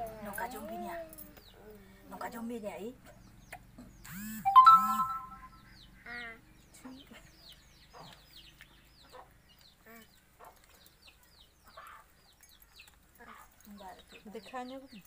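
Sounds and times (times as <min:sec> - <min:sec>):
chicks peeping: 0:07.0 - 0:14.9.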